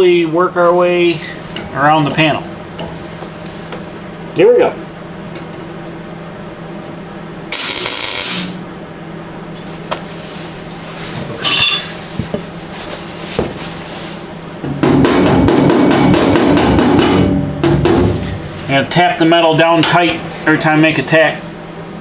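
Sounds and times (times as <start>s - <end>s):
welder crackling: 7.5s - 8.6s.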